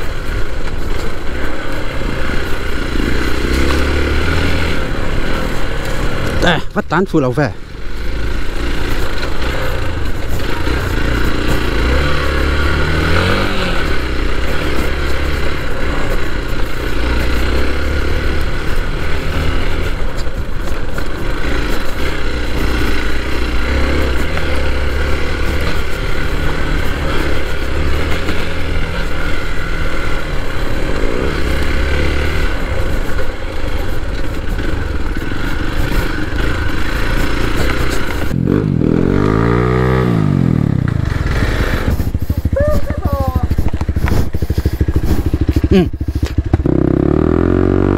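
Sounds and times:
clatter and scraping on trail: 0.0 - 47.9
motorcycle engine revving: 0.0 - 47.9.

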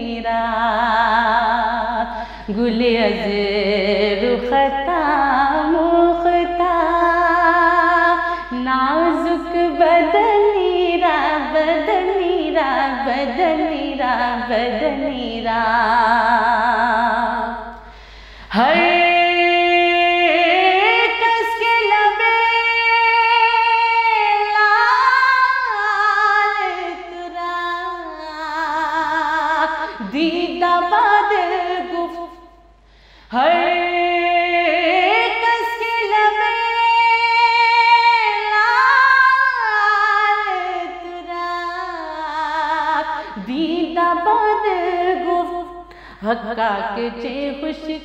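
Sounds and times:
woman singing: 0.0 - 32.6, 33.3 - 48.0.

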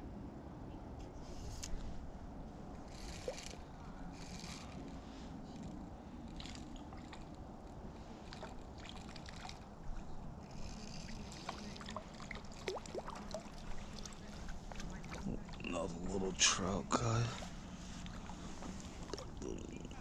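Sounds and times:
water trickling: 6.3 - 16.2, 17.0 - 20.0.

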